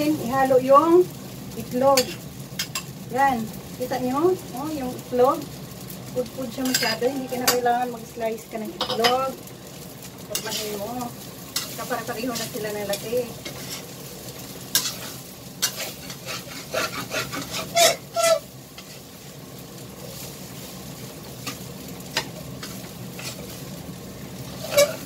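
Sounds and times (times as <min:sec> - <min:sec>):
rice sizzling in a wok: 0:00.0 - 0:25.0
metal spoon scraping a wok: 0:06.6 - 0:07.5, 0:11.6 - 0:14.0, 0:14.7 - 0:19.1, 0:21.4 - 0:23.6, 0:24.5 - 0:25.0.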